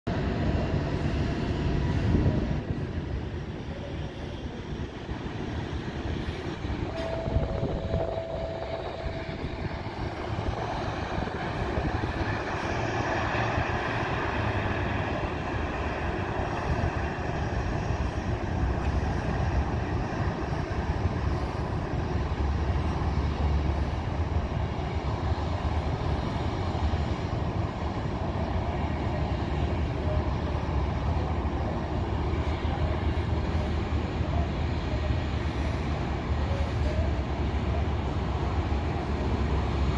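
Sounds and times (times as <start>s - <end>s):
distant jet engines rumbling: 0.1s - 39.9s
wind buffeting microphone: 0.1s - 39.9s
high steady tone: 5.6s - 12.8s.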